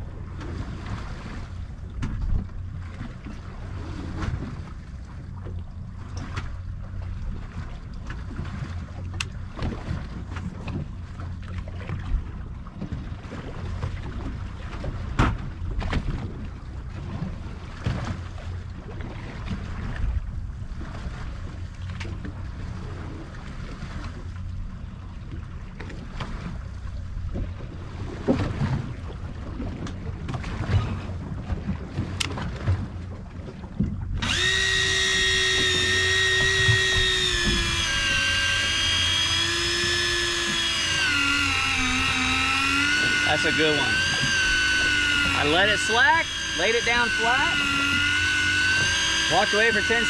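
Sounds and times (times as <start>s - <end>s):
water against a hull: 0.0s - 50.0s
steady low hum: 32.2s - 50.0s.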